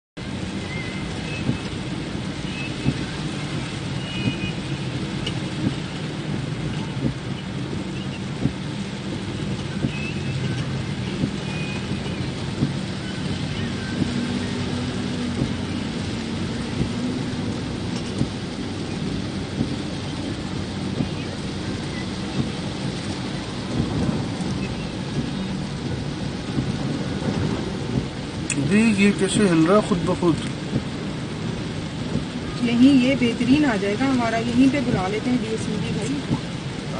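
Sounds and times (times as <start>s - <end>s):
car engine hum: 0.2s - 36.9s
rain: 0.2s - 36.9s
windshield wipers knocking: 4.2s - 28.5s, 30.4s - 32.4s.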